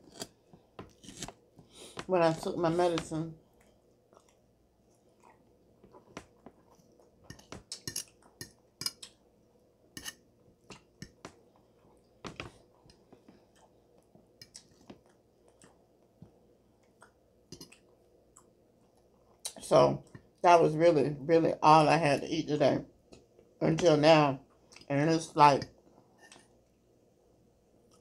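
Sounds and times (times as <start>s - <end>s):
close chewing with mouth clicks: 3.5s - 9.2s, 10.7s - 20.4s.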